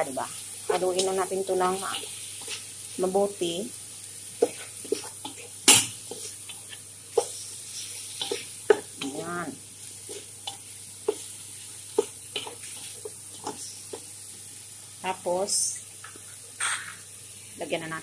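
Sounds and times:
faint sizzle: 0.0 - 18.0
wooden spatula scraping a pan: 4.4 - 9.2, 12.0 - 14.1.

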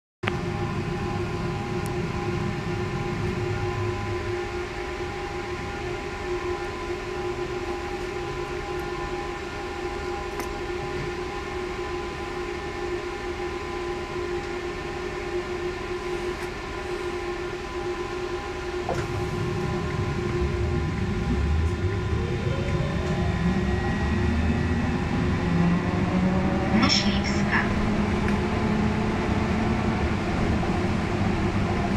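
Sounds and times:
trolleybus electrical hum: 0.2 - 31.9
road rumble: 18.8 - 31.9.

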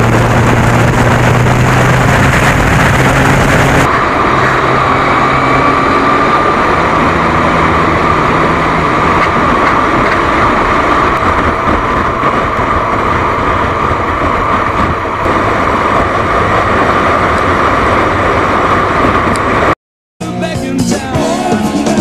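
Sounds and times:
motorcycle engine: 0.0 - 19.8
wind rush: 0.0 - 19.8
background music: 20.2 - 22.0.

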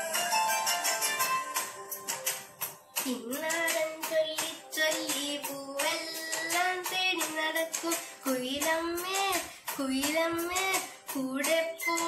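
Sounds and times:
boy singing unaccompanied: 3.0 - 12.0.

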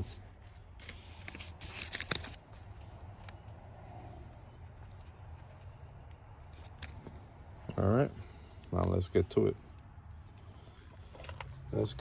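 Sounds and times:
paper rustling and crinkling: 0.0 - 3.3.

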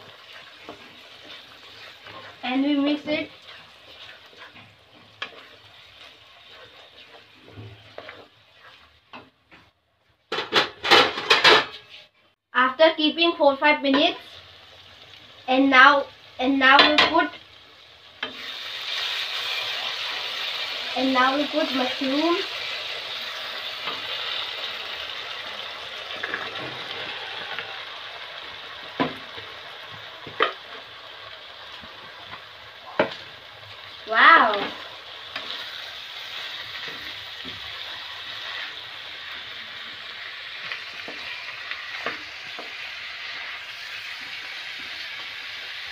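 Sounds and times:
low frying sizzle: 0.0 - 45.9
wooden spatula scraping metal pan: 0.1 - 9.7.

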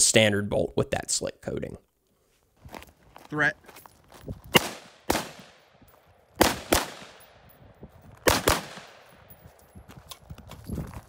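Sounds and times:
rifle shots: 4.5 - 5.7, 6.4 - 7.5, 8.2 - 9.2.

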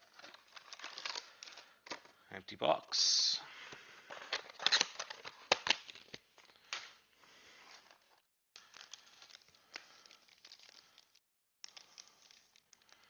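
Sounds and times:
foil pack crinkling and tearing: 0.0 - 2.0, 4.1 - 6.8, 8.6 - 13.0.

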